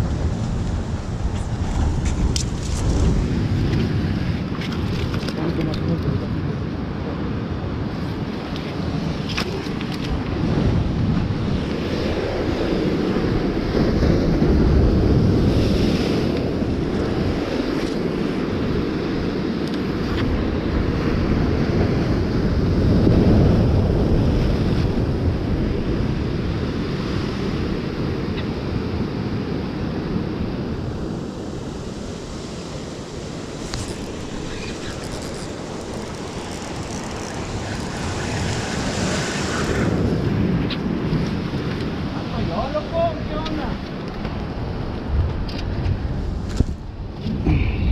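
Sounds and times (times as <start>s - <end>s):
sea surf breaking on rocks: 0.0s - 47.9s
wind buffeting microphone: 0.0s - 47.9s.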